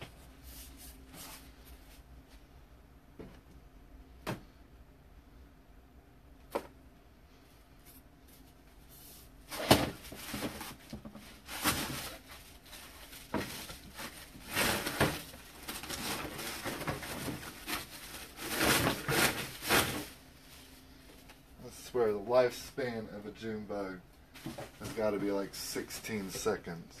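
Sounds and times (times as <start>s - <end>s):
rustling: 7.8s - 21.3s.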